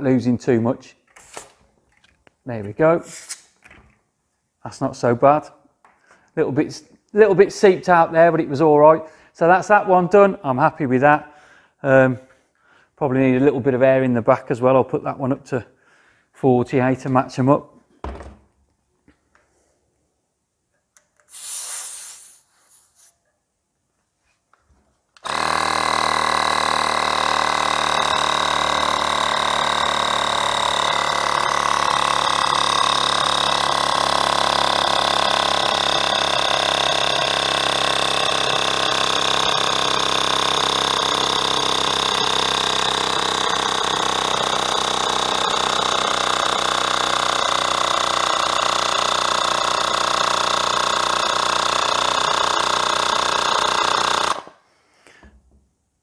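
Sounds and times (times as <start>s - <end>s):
short hiss of air: 1.2s - 1.6s, 21.3s - 23.2s
mini air compressor running: 21.3s - 22.4s, 25.2s - 54.6s.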